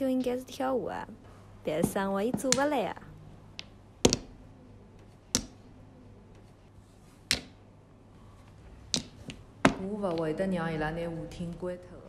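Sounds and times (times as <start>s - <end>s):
mahjong tiles clacking: 8.8s - 10.4s.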